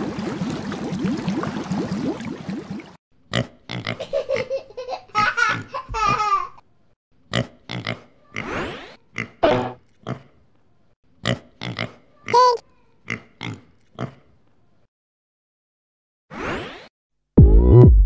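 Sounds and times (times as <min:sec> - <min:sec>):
bubbling splashing sound effect: 0:00.0 - 0:03.0
pig grunting: 0:11.2 - 0:12.0.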